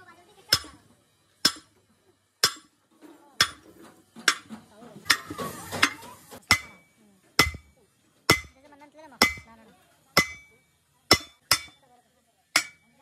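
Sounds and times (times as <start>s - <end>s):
hammer striking steel: 0.5s - 0.8s, 1.4s - 1.8s, 2.4s - 2.8s, 3.4s - 4.5s, 5.1s - 7.7s, 8.3s - 8.6s, 9.2s - 9.5s, 10.2s - 11.8s, 12.6s - 12.9s.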